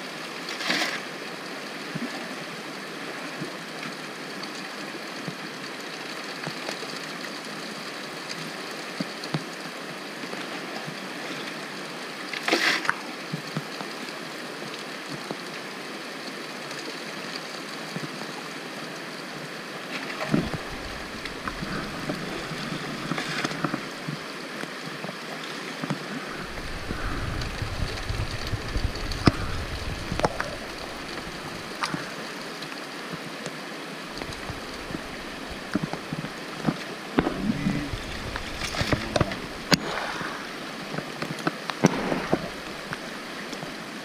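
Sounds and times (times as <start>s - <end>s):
creek water running over stones: 0.0s - 44.0s
low rumbling water movement: 20.2s - 24.3s, 26.1s - 32.7s, 34.0s - 44.0s.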